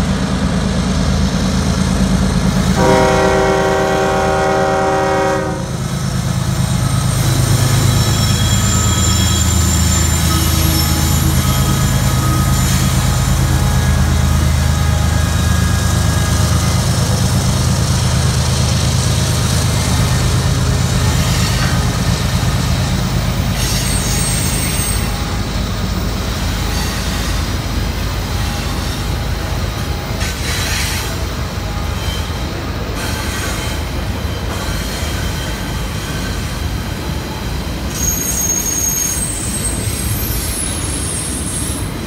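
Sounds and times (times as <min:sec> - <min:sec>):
diesel locomotive engines droning: 0:00.0 - 0:42.0
rail noise: 0:00.0 - 0:42.0
wheels squealing: 0:06.7 - 0:17.7, 0:18.8 - 0:29.1, 0:30.1 - 0:42.0.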